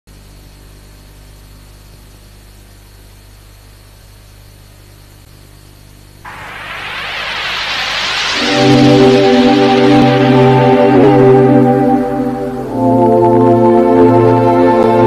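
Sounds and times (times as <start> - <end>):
low electrical hum: 0.1 - 11.0
faint tape hiss: 6.3 - 15.0
logo music: 6.3 - 15.0.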